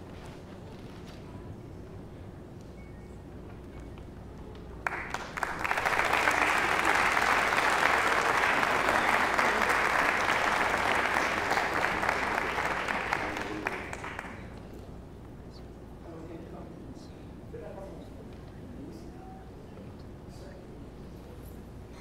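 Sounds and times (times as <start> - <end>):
audience applauding: 4.8 - 14.6.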